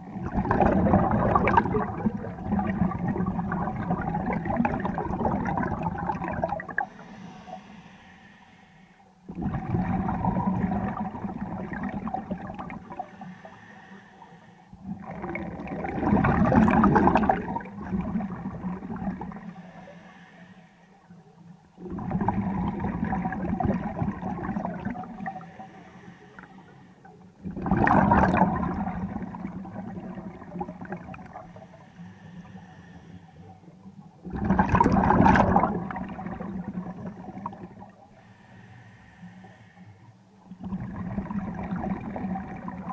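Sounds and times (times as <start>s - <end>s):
bubbling exhaust: 0.0s - 6.9s, 9.3s - 13.4s, 14.8s - 19.5s, 21.8s - 25.7s, 27.4s - 31.7s, 34.2s - 38.0s
diver breathing through regulator: 6.6s - 9.3s, 12.7s - 14.8s, 19.3s - 21.1s, 25.1s - 27.3s, 31.3s - 33.8s, 37.2s - 40.3s.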